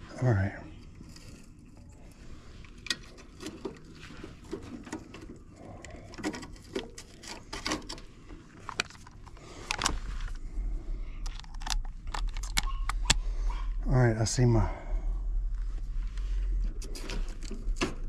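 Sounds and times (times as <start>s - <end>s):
hands handling tools and parts: 0.8s - 10.4s, 11.2s - 13.2s
low rumble: 10.0s - 17.4s.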